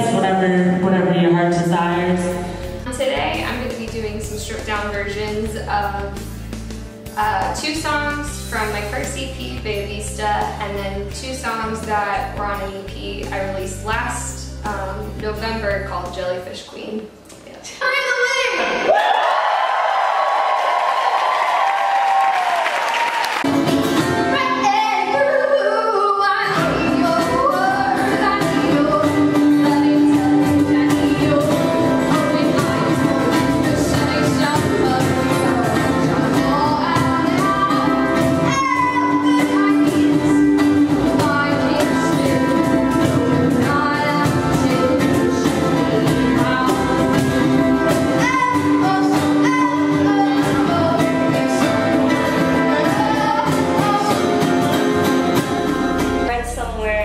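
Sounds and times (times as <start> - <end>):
upright bass: 0.0 - 16.3, 26.2 - 57.0
acoustic guitar: 0.0 - 18.4, 21.4 - 57.0
woman singing: 24.3 - 54.9.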